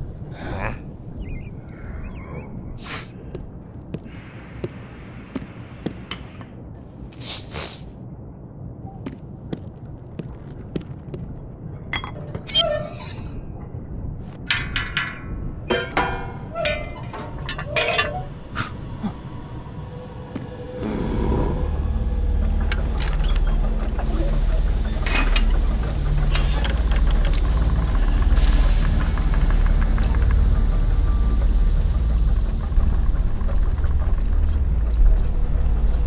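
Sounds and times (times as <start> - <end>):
low steady rumble: 7.9 - 36.0
music: 20.7 - 36.0.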